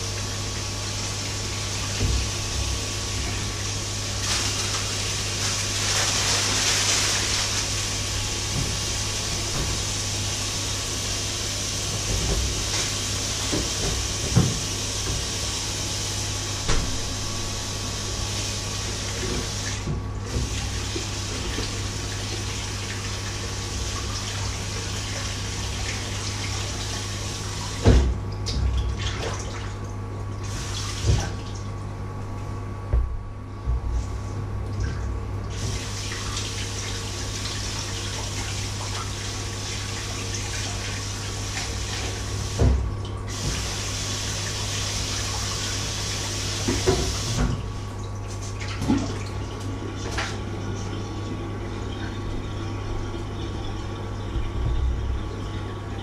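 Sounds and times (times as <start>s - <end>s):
steady low hum: 0.0s - 45.6s, 46.2s - 56.0s
tap running into sink: 46.6s - 47.6s.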